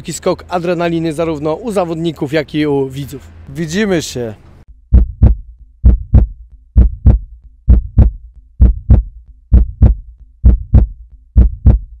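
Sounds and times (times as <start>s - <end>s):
heartbeat thumps: 4.8s - 12.0s.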